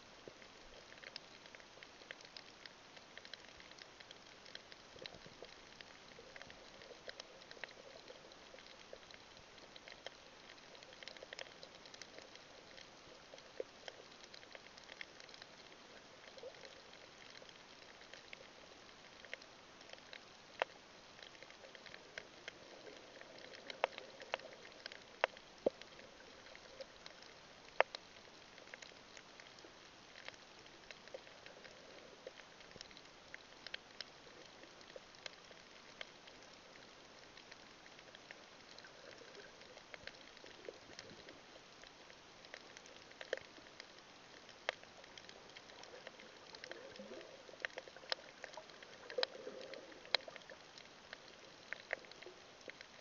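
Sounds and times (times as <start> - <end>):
light underwater hiss: 0.0 - 53.0
snapping shrimp crackle: 37.2 - 53.0.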